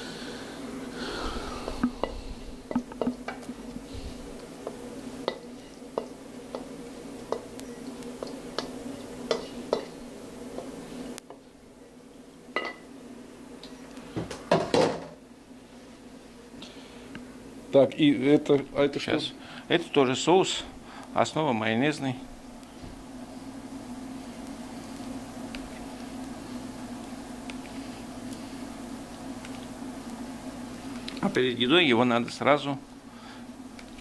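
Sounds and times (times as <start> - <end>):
steady low hum: 0.0 - 34.0.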